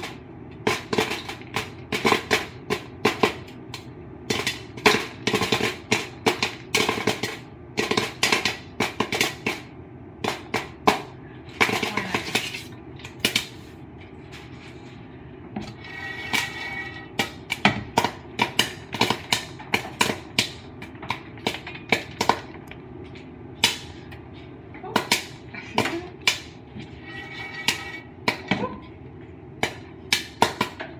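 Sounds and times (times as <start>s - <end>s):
popcorn kernels popping: 0.0s - 13.6s, 15.6s - 22.8s, 23.6s - 24.2s, 24.8s - 26.6s, 29.5s - 30.9s.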